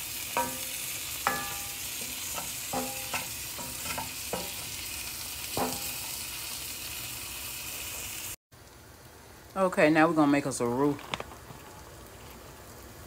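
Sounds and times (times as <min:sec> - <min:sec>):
onions sizzling in a skillet: 0:00.0 - 0:13.0
wooden spoon scraping a pan: 0:00.4 - 0:04.9.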